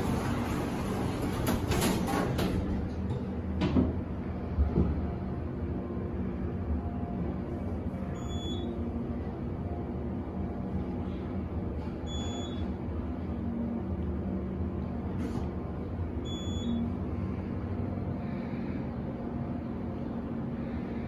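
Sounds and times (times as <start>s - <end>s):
elevator hum and rumble: 0.0s - 21.0s
short high beeps: 8.2s - 8.7s, 16.3s - 16.8s.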